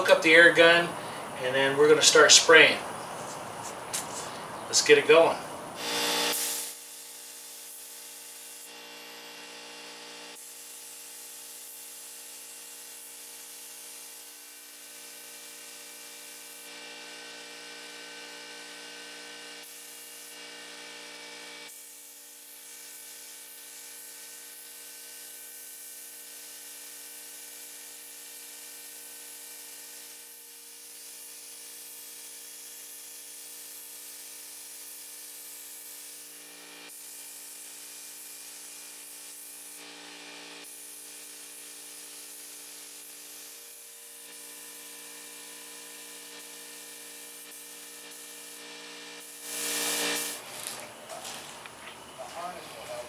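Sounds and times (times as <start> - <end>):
air compressor humming: 0.0 - 9.2, 40.6 - 53.0
spray gun hissing: 21.7 - 39.8, 40.6 - 50.7.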